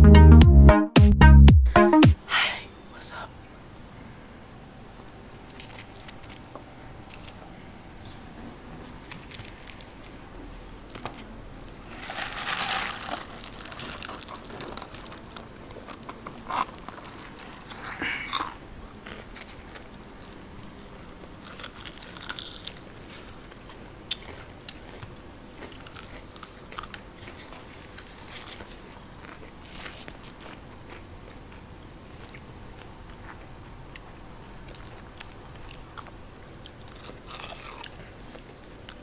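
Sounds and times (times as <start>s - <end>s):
chewing: 5.5s - 7.8s, 13.4s - 20.0s, 20.6s - 39.0s
crunching fried chicken: 9.0s - 20.0s, 20.6s - 39.0s.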